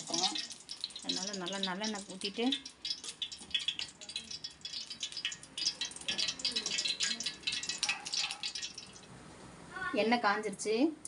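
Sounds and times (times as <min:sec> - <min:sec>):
oil crackling and popping: 0:00.0 - 0:09.2.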